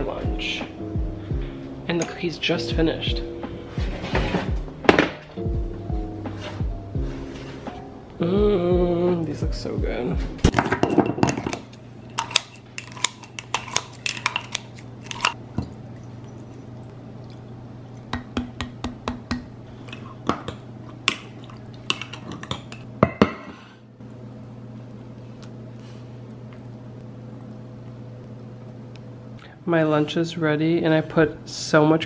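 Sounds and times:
utensils clinking on glass and metal: 10.6 - 15.4.

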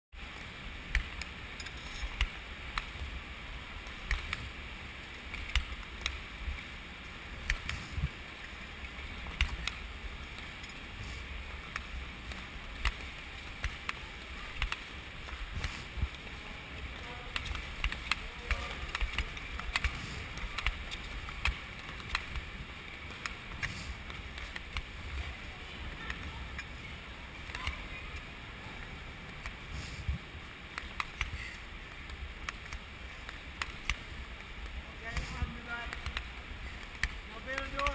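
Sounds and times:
wind rumble on microphone: 6.2 - 12.2, 27.7 - 30.5
skate blades scraping ice: 7.5 - 28.9.

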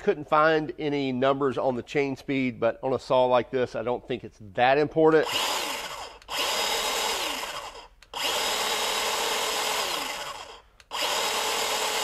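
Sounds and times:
electric chainsaw running: 5.2 - 12.0.

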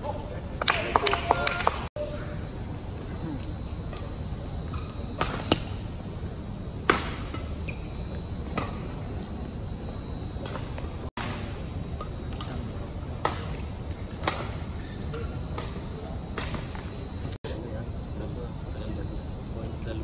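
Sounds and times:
low hall hum: 0.0 - 20.0
racket hitting shuttlecock: 4.7 - 5.8, 6.8 - 7.6, 8.4 - 9.0, 10.4 - 16.9.

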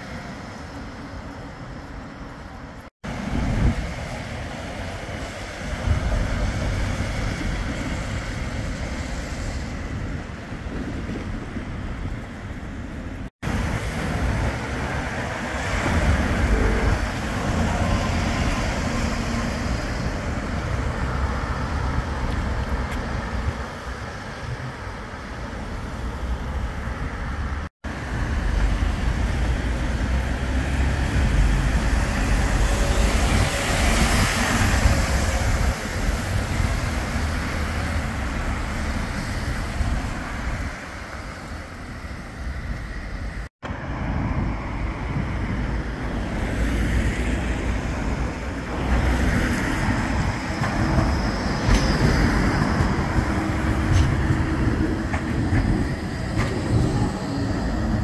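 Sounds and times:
bus passing: 0.0 - 58.0
wind buffeting microphone: 0.1 - 58.0
cars tyre hiss on wet road: 27.9 - 43.5.

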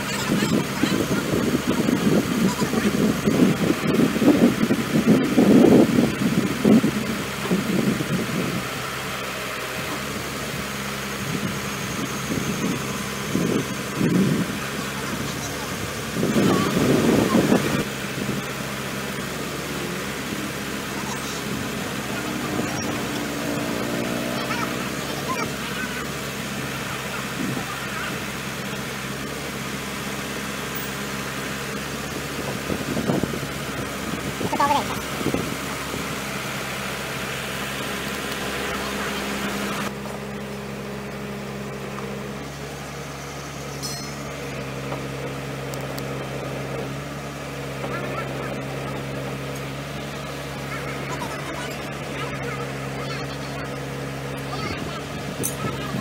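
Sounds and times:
diesel crane engine idling: 0.0 - 56.0
men talking: 19.6 - 28.8.

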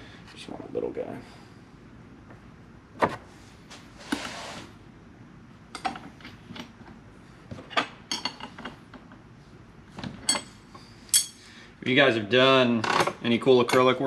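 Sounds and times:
metal tools clinking: 10.3 - 11.4.

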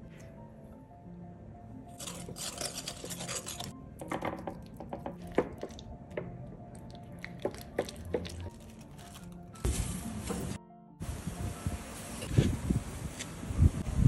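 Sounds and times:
whisk scraping in bowl: 2.0 - 3.7.

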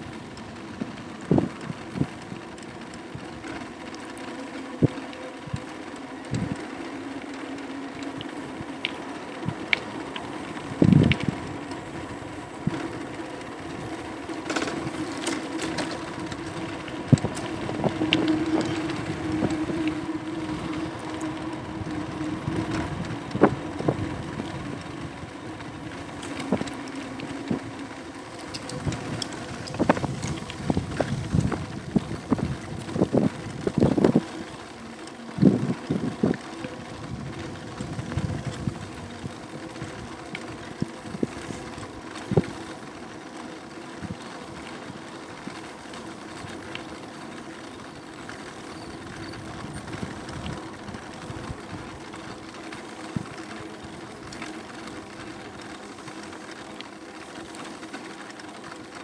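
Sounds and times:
bike rattling and knocking: 0.0 - 59.0
electric motor hum: 0.0 - 59.0
wind on microphone: 0.7 - 2.4, 6.3 - 6.6, 10.5 - 13.1, 13.7 - 42.6.

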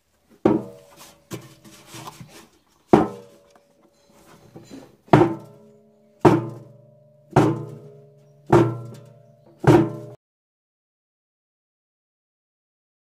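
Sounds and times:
heavy knocks on washing machine drum: 0.5 - 0.8, 3.0 - 3.3, 5.1 - 5.6, 6.2 - 10.2.

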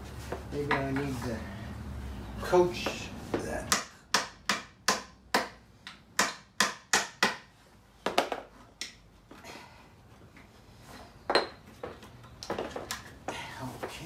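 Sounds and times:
hammer tapping wood: 2.8 - 9.0.

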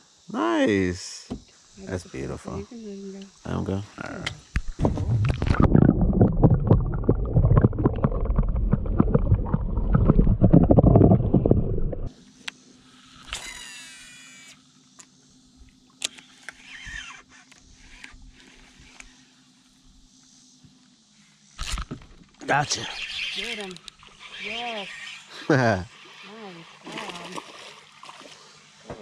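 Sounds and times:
underwater water sloshing: 4.5 - 12.1
fishing reel whine: 12.1 - 19.9, 21.5 - 28.8.

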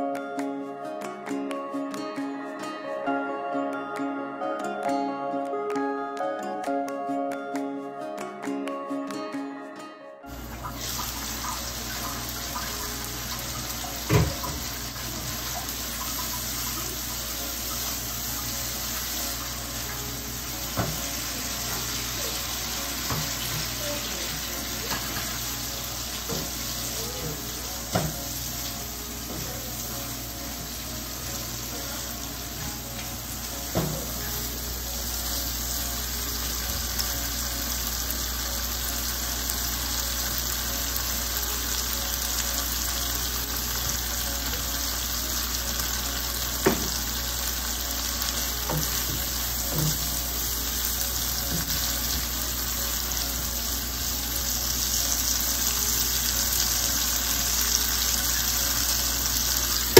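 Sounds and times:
food sizzling in a frying pan: 10.3 - 59.9
sharp knocks against pan: 46.7 - 47.0.

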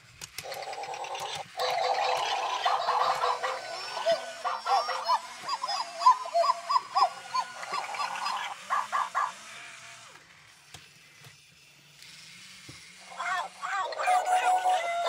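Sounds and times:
robotic toy dogs chirping: 0.4 - 9.6, 13.0 - 15.0.

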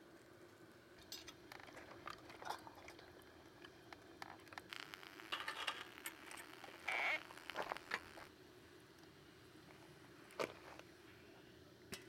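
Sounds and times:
charcoal crackling and popping: 1.0 - 8.3.

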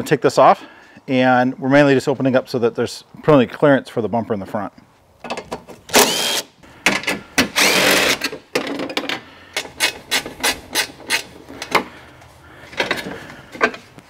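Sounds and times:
impact wrench bursts: 5.9 - 6.5, 7.4 - 8.3.

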